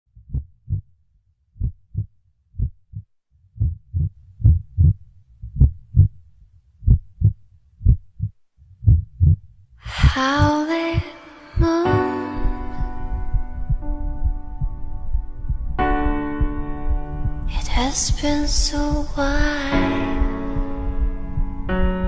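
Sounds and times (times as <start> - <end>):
heartbeat thumps: 0.2 - 0.9, 1.6 - 6.2, 6.8 - 17.8, 18.5 - 22.0
music: 11.1 - 22.0.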